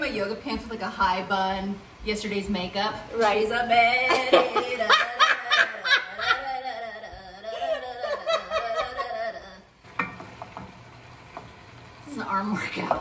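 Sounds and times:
women laughing: 4.1 - 9.7.

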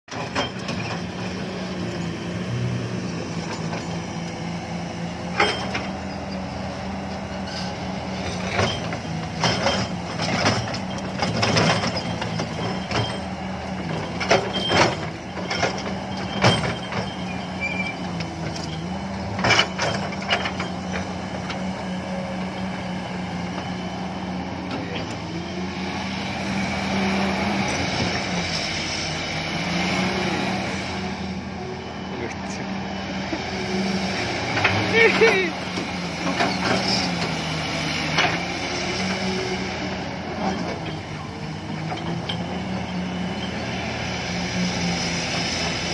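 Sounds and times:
metal clanks from excavator bucket: 0.1 - 1.1, 5.3 - 6.0, 7.4 - 21.6
excavator diesel engine running: 0.1 - 45.9.

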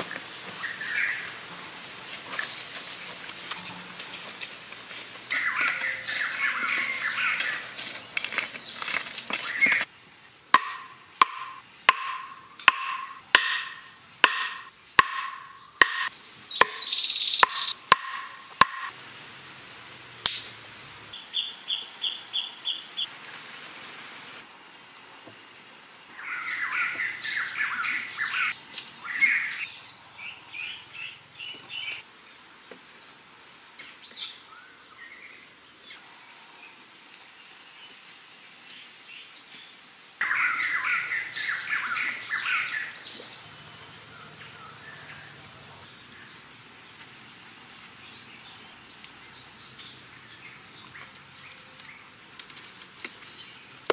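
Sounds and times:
birds chirping: 0.0 - 3.9, 5.2 - 9.9, 10.6 - 18.9, 26.2 - 32.0, 39.9 - 52.2
insect buzz: 0.0 - 50.8
stone knocking wooden stake: 10.6 - 18.9.

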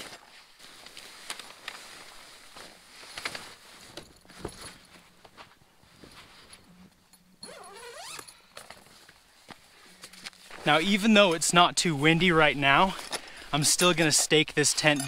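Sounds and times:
fabric rustling: 0.0 - 6.9.

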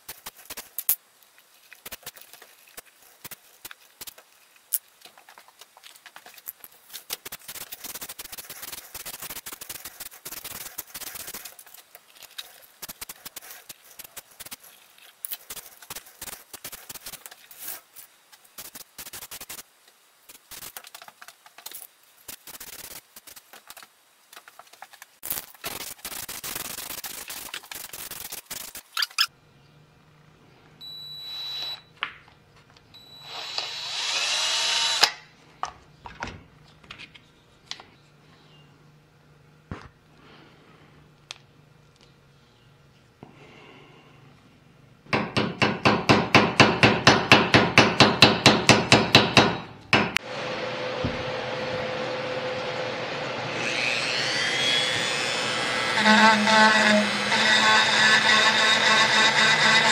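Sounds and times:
scratchy crackling and hissing: 0.0 - 29.3
cordless drill whining: 33.0 - 35.1.

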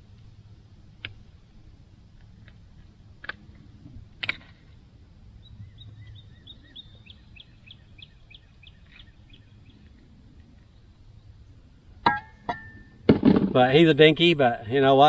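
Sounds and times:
songbird chirping: 5.2 - 13.0.

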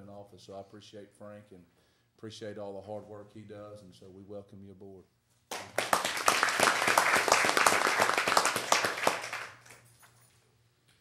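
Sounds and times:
audience applauding: 5.5 - 9.8.

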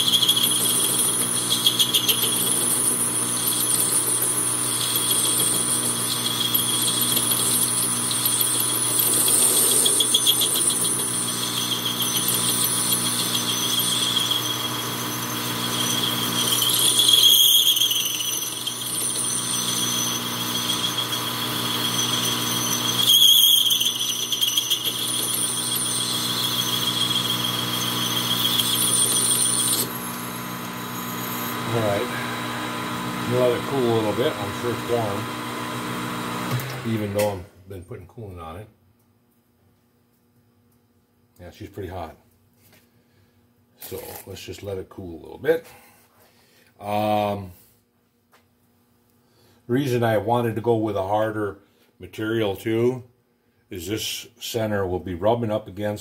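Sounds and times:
blade rubbing: 0.0 - 30.0
lathe cutting squeal: 0.0 - 36.6.

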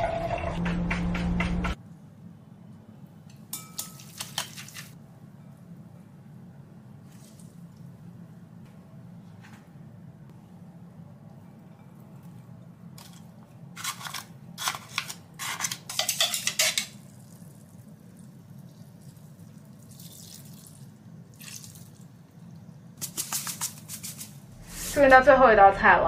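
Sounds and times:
low steady hum: 5.0 - 13.7.

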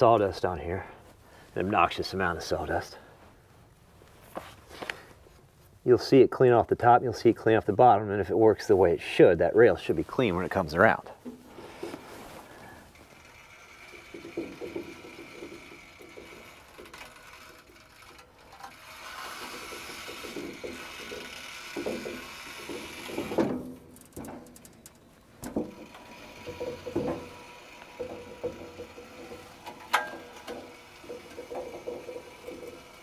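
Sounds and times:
trolley wheels rolling on steel rail: 9.8 - 33.0
knocks clanks and scraping: 11.2 - 33.0.

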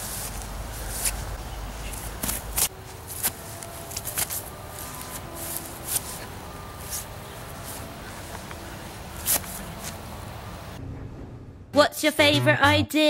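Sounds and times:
footsteps on grass: 0.0 - 10.6
low wind rumble: 0.0 - 12.0
faint steady tones: 2.7 - 10.8.

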